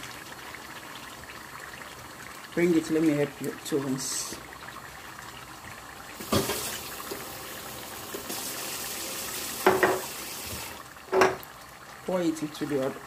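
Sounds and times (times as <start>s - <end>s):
tap water running into bottle: 6.1s - 11.5s
bottle knocks: 9.6s - 10.1s, 11.1s - 11.4s.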